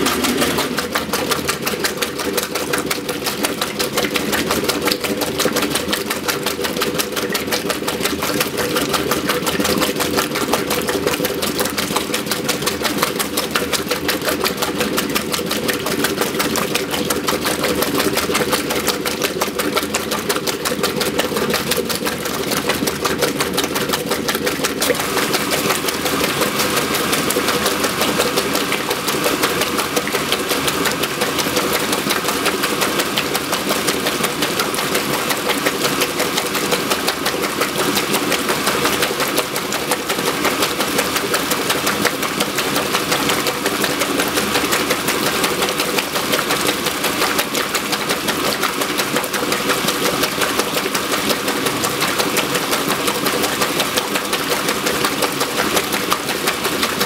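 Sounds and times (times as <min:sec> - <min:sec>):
agitator sloshing water: 0:00.0 - 0:57.0
washing machine motor hum: 0:00.0 - 0:57.0
water pouring into tub: 0:00.0 - 0:57.0.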